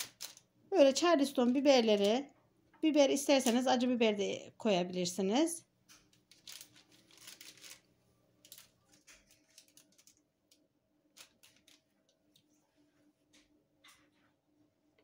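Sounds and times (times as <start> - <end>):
paper rustling: 6.3 - 10.3, 11.1 - 12.6.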